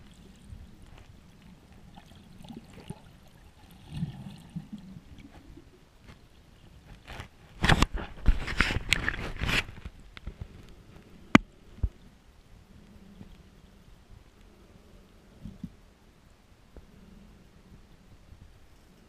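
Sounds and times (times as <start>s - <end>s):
water sloshing and splashing: 0.0s - 6.3s.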